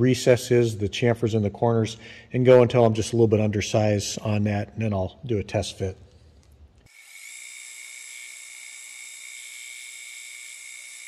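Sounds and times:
lathe chuck spinning with high whine: 6.9s - 11.0s.

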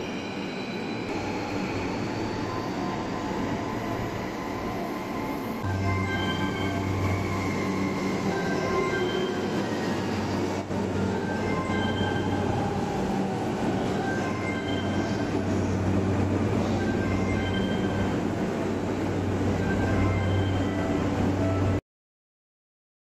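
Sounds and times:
train wheel squeals: 0.0s - 13.2s
train rumbling: 0.0s - 21.8s.

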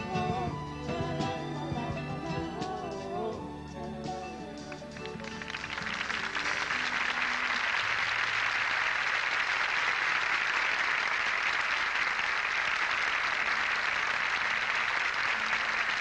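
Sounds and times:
audience applause: 4.7s - 16.0s.

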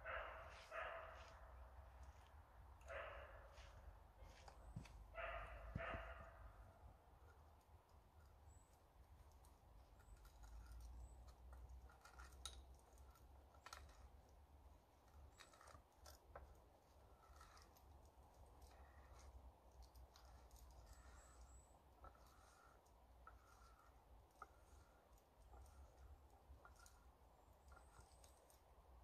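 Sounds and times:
hand tool scraping wood: 9.4s - 29.0s.

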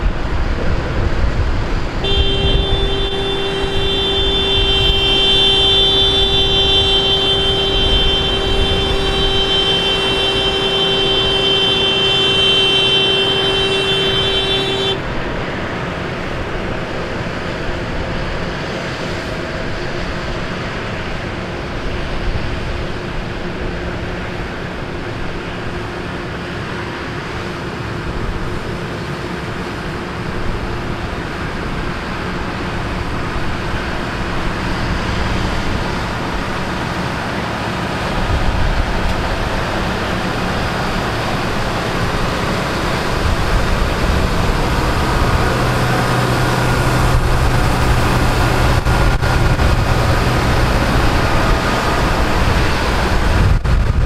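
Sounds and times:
tractor engines rumbling: 0.0s - 54.0s
vehicle horn long blast: 2.0s - 15.2s.

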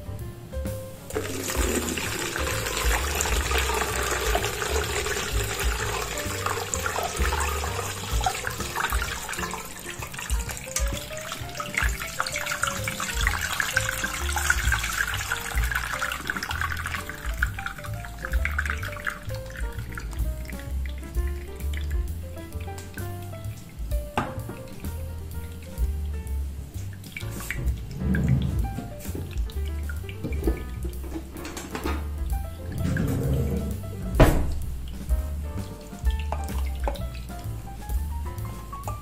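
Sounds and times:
juice draining into bowl: 1.1s - 20.8s
juice pouring and splashing: 1.1s - 39.0s.

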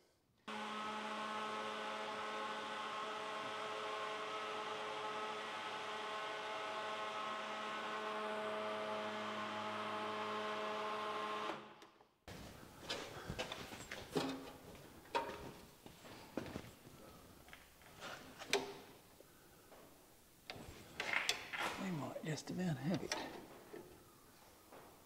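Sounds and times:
steady machine hum: 0.5s - 11.4s.

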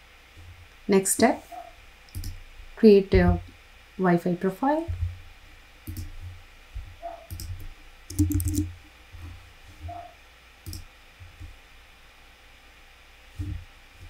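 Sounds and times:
computer mouse clicks: 2.1s - 2.4s, 5.8s - 6.1s, 7.1s - 8.7s, 10.6s - 10.9s
keystrokes: 2.1s - 2.4s, 5.8s - 6.1s, 7.0s - 8.7s.

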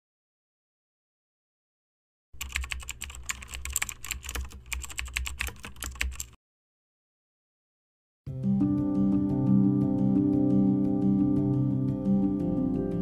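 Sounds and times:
keyboard typing: 2.4s - 6.4s.

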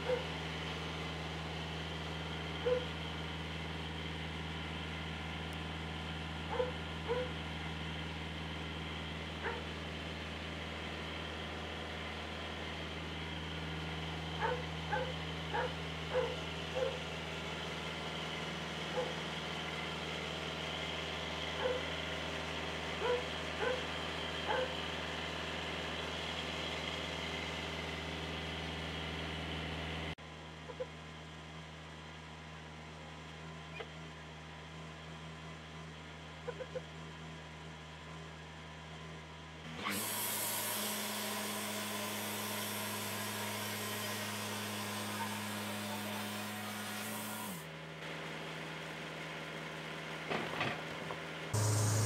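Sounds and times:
dog yipping and barking: 0.0s - 0.3s, 2.6s - 2.9s, 6.5s - 7.3s, 9.4s - 9.7s, 14.4s - 17.0s, 18.9s - 19.2s, 21.6s - 21.9s, 23.0s - 23.8s, 24.5s - 24.7s
steady low hum: 51.6s - 52.0s.

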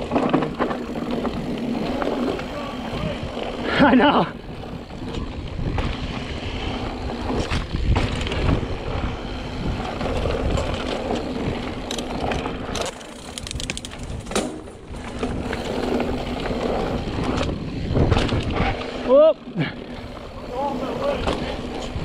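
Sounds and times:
bike tyres crunching over dirt: 0.0s - 22.0s
bike chain clattering: 7.4s - 22.0s.

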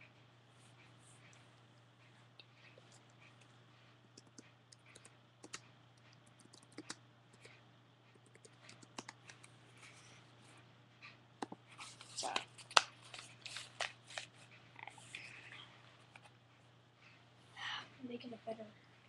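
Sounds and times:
keyboard typing clicks: 4.1s - 7.0s.

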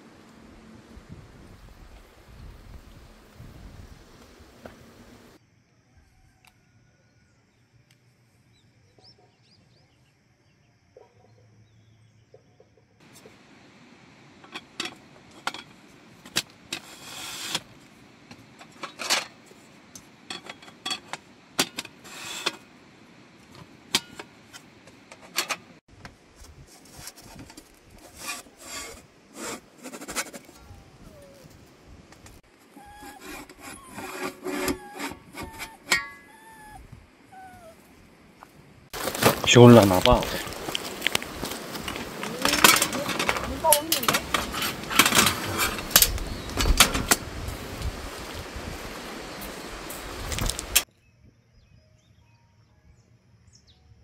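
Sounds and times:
scraping and rubbing strokes: 16.7s - 17.9s, 20.4s - 22.7s, 26.4s - 31.6s, 32.3s - 36.0s.

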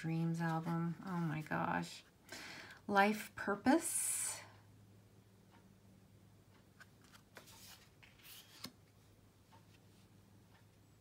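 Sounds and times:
cards sliding: 6.8s - 8.8s.

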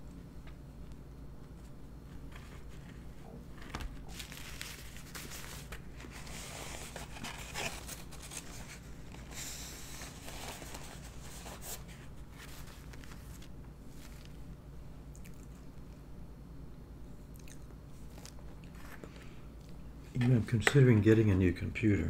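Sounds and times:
paper napkin crumpling: 1.4s - 14.5s.

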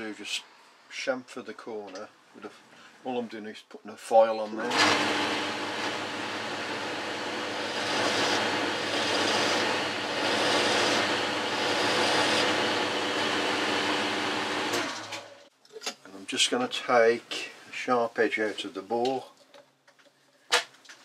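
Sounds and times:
lathe running down: 4.7s - 15.4s
lathe motor hum: 4.7s - 15.5s
file rasping on metal: 7.5s - 13.3s.

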